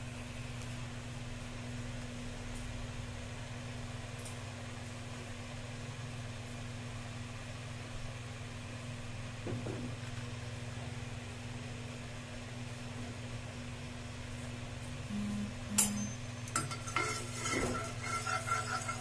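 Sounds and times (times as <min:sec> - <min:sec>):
machine humming: 0:14.9 - 0:19.0.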